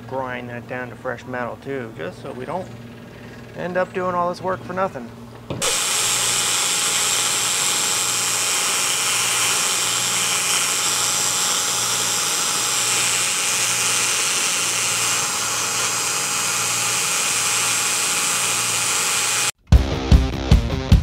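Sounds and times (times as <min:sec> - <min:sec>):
drill grinding rust from steel: 0:05.6 - 0:19.6.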